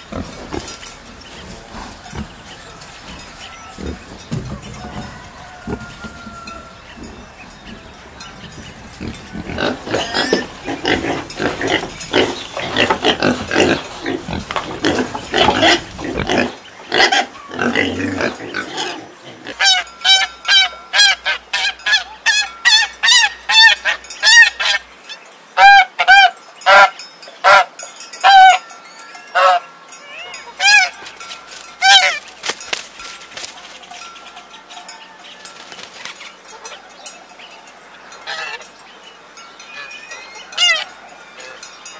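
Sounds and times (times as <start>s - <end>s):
pigs grunting and squealing: 0.0s - 24.8s
geese honking: 0.0s - 24.9s, 25.6s - 28.6s, 29.4s - 32.4s, 38.1s - 38.7s, 39.6s - 41.7s.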